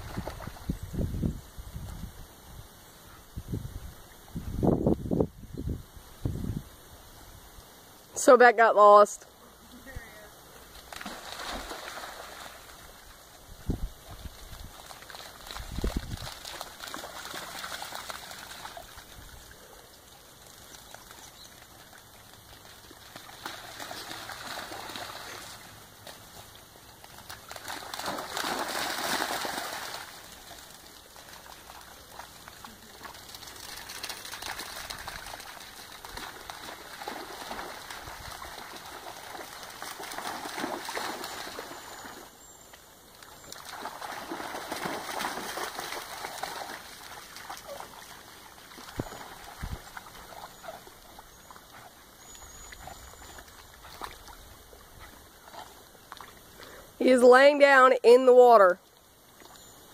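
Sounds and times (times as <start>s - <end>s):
dogs splashing through water: 0.0s - 0.8s, 10.6s - 13.4s, 14.0s - 42.4s, 43.1s - 56.8s.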